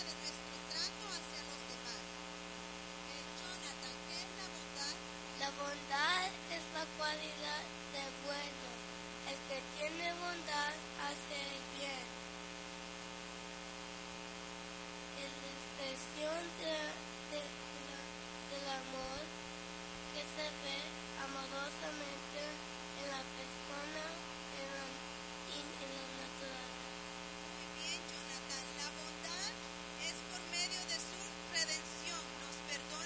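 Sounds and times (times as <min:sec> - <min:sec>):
electrical mains hum: 0:00.0 - 0:33.0
children talking quietly: 0:03.4 - 0:12.1, 0:15.1 - 0:19.3.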